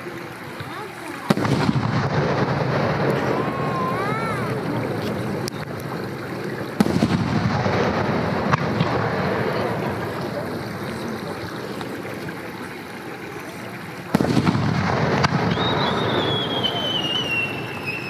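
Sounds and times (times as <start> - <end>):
small firework crack: 0.6 - 12.0, 14.1 - 18.0
firework shells booming: 1.2 - 10.9, 14.1 - 18.0
rumbling echo: 1.2 - 12.7, 14.1 - 17.9.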